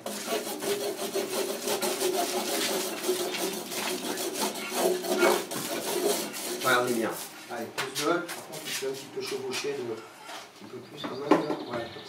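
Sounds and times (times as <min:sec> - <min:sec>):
hand tools scraping cloth: 0:00.0 - 0:07.4.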